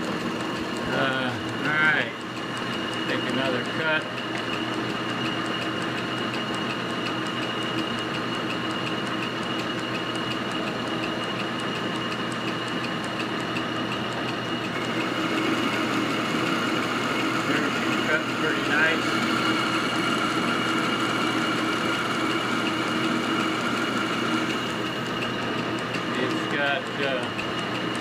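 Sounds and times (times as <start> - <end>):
metal lathe running: 0.0 - 28.0
light regular ticking: 0.1 - 14.8, 24.8 - 28.0.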